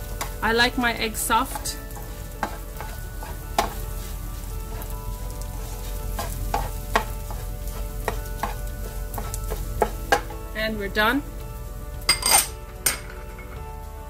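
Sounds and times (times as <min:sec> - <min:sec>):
food frying sizzle: 0:00.0 - 0:14.0
spoon scraping frying pan: 0:00.2 - 0:10.5
spoon knocking against pan: 0:06.2 - 0:07.4, 0:08.0 - 0:10.4.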